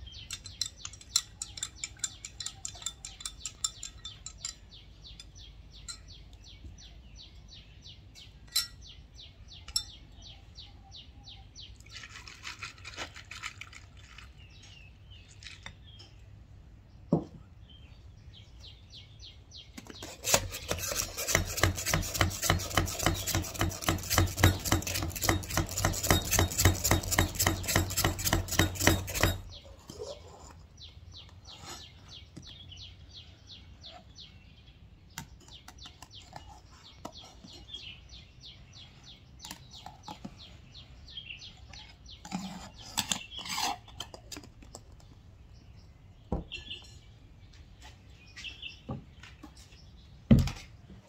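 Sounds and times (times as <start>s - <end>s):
spoon ticking against glass: 0.2s - 6.1s
coffee poured over ice: 11.9s - 14.4s.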